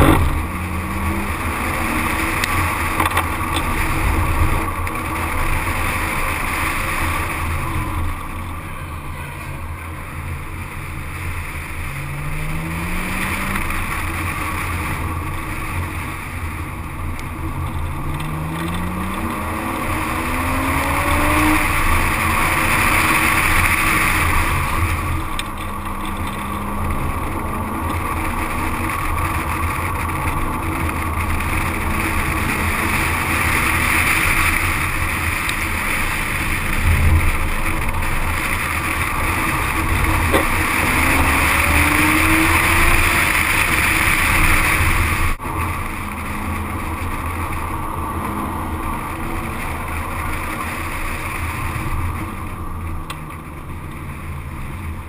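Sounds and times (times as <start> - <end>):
car engine accelerating: 0.0 - 55.0
tyre and wind rush: 10.2 - 52.6.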